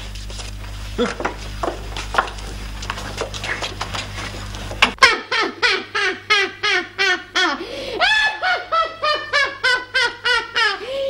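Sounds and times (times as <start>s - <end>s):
shuffling: 0.0s - 5.0s
woman cackling laugh: 5.0s - 11.0s.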